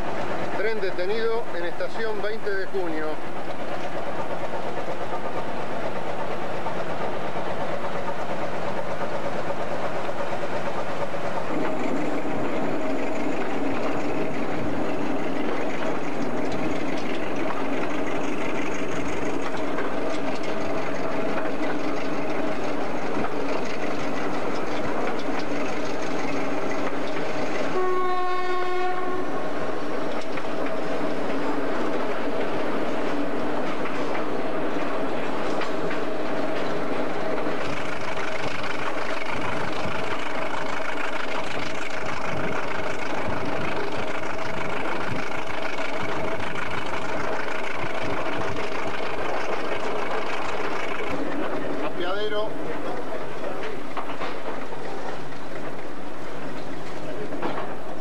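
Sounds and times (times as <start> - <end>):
train running noise: 0.0 - 58.0
locomotive horn: 27.6 - 29.4.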